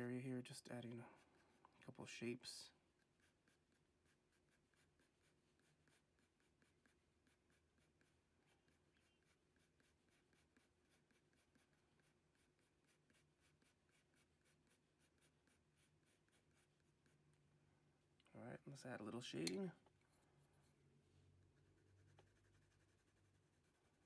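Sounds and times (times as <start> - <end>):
pencil scratching on paper: 0.5 - 17.4, 21.4 - 24.0.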